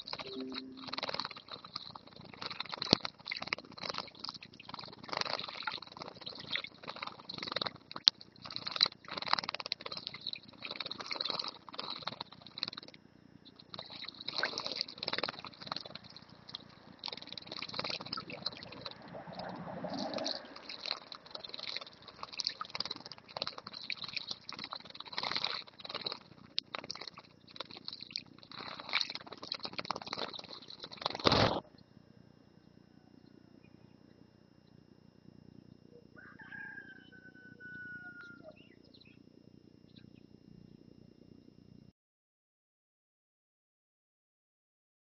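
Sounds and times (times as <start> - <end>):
birds splashing in water: 0.0 - 31.6
wing flutters: 13.5 - 31.6.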